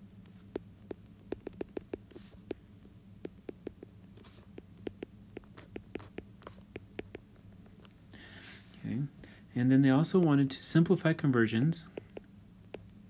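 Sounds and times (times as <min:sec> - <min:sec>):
faint low hum: 0:00.0 - 0:13.0
stylus tapping on glass screen: 0:00.5 - 0:02.6, 0:03.2 - 0:03.9, 0:04.6 - 0:07.2.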